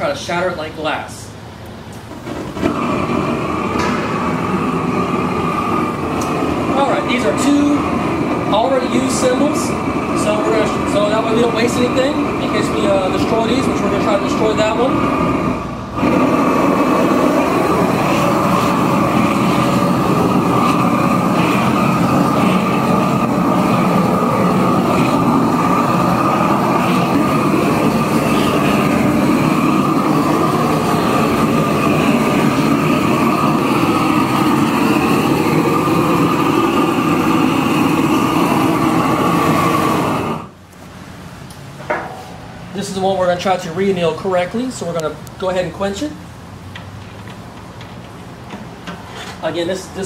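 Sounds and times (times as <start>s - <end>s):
gas torch flame rushing: 1.6s - 46.1s.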